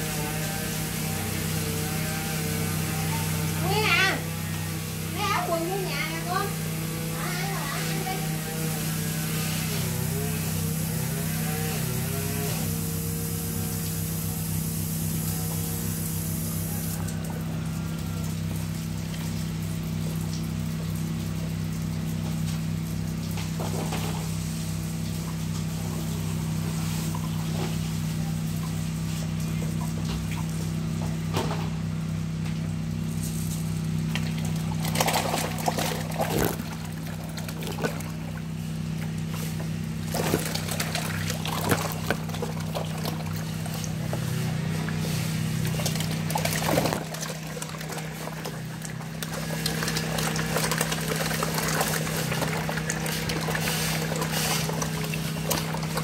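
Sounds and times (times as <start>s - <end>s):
water sloshing and splashing: 16.9s - 56.0s
steady low hum: 22.8s - 56.0s.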